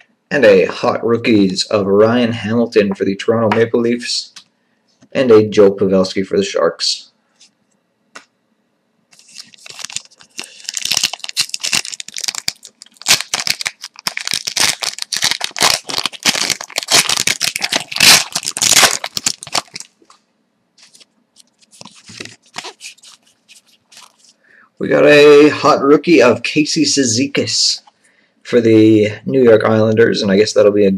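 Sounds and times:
cards rustling: 0:09.1 - 0:20.0, 0:20.8 - 0:24.4
plastic wrapper tearing and crinkling: 0:09.2 - 0:20.0, 0:20.8 - 0:24.4.

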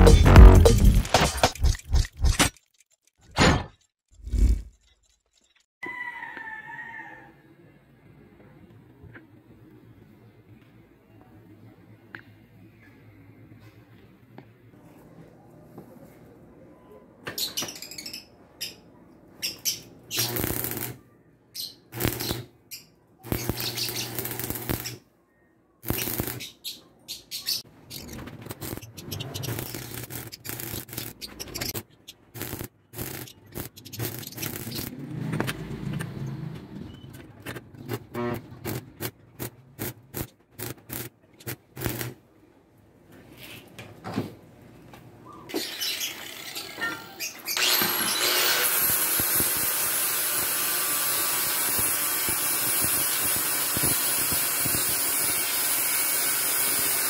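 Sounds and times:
arc welding bursts: 0:20.1 - 0:21.0, 0:21.9 - 0:22.5, 0:23.2 - 0:25.0, 0:25.8 - 0:26.5, 0:32.4 - 0:34.9, 0:37.9 - 0:42.2, 0:47.5 - 0:57.0
low welder hum: 0:20.1 - 0:21.0, 0:21.9 - 0:22.5, 0:23.2 - 0:25.0, 0:25.8 - 0:26.5, 0:28.5 - 0:37.0, 0:37.8 - 0:42.2, 0:45.9 - 0:57.0.

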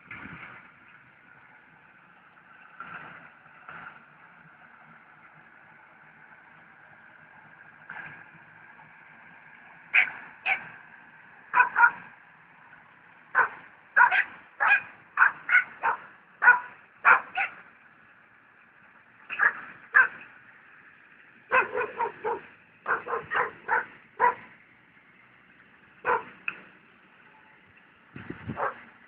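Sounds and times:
dog barking: 0:10.0 - 0:10.7, 0:11.5 - 0:12.1, 0:13.3 - 0:17.6, 0:19.3 - 0:20.2, 0:21.5 - 0:24.5, 0:26.0 - 0:26.3, 0:28.5 - 0:28.8.

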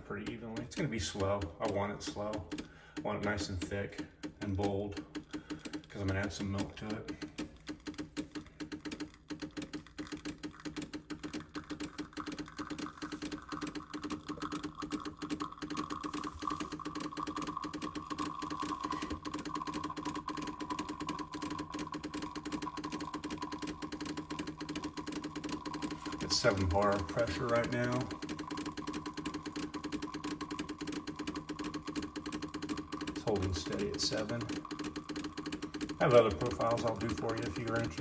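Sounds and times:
espresso machine pump pulsing: 0:00.0 - 0:38.0.

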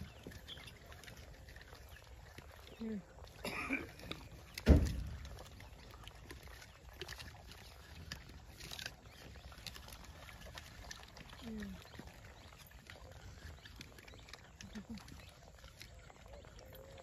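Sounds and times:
loud dull thump: 0:04.7 - 0:05.1.

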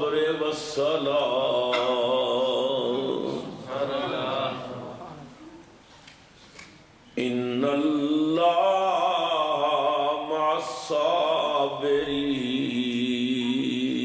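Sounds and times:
man chanting melodically: 0:07.2 - 0:14.0.

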